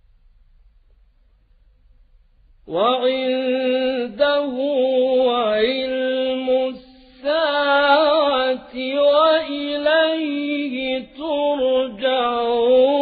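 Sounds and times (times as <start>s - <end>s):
man chanting melodically: 2.7s - 13.0s.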